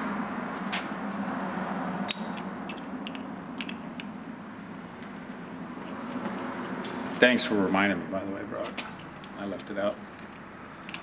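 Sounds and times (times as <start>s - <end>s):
ringing metallic click: 2.1s - 3.8s
small metal parts clinking: 2.1s - 4.1s, 10.1s - 11.0s.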